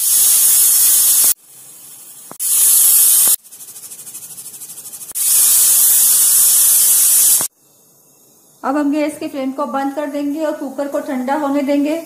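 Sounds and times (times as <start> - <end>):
pressure cooker fast sputtering: 0.0 - 7.5
pressure cooker steam hissing: 0.0 - 7.6.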